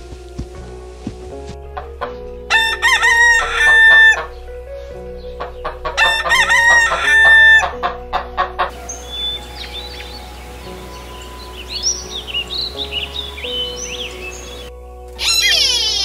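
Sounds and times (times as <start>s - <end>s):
rooster crowing: 2.5s - 4.4s, 5.8s - 7.8s.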